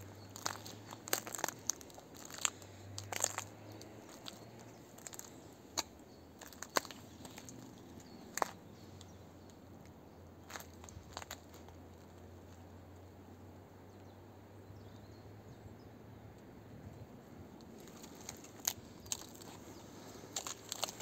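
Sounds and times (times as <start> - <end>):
footsteps snapping twigs: 0.0 - 9.6, 10.4 - 12.2, 17.6 - 21.0
faint background noise: 0.0 - 21.0.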